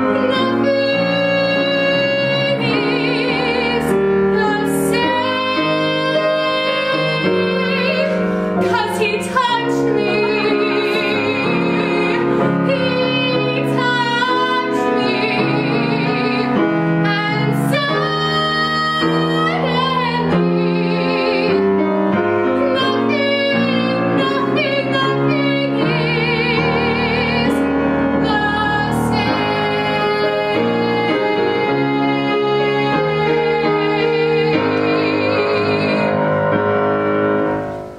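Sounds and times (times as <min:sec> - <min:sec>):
woman singing with vibrato: 0:00.0 - 0:36.6
grand piano: 0:00.0 - 0:37.9.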